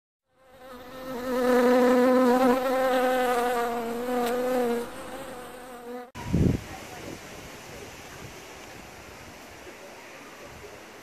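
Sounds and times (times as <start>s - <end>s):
bee buzzing: 0.3s - 6.2s.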